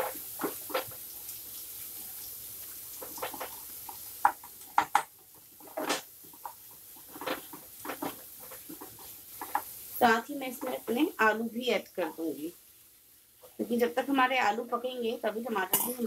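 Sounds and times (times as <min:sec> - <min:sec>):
wooden spatula scraping a pan: 0:00.0 - 0:01.0, 0:02.9 - 0:04.7, 0:05.4 - 0:11.0.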